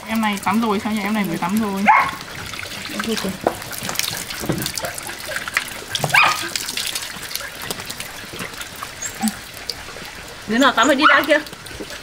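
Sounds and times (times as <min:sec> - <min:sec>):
hose water splashing on concrete: 0:00.0 - 0:12.0
puppy whine: 0:09.0 - 0:09.5.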